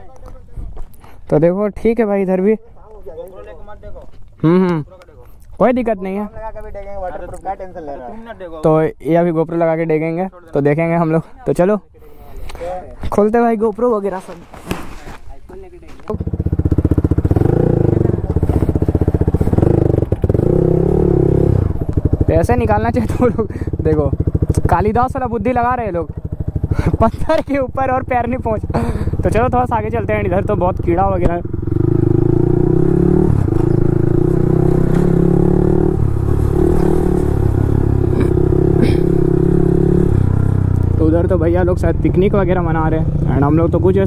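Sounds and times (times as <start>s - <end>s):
motorcycle engine revving: 16.0s - 44.0s.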